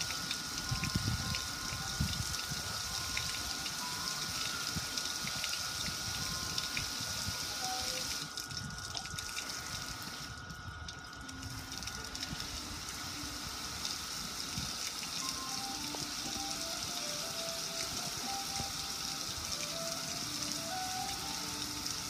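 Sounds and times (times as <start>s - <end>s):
water splashing on metal: 0.0s - 22.0s.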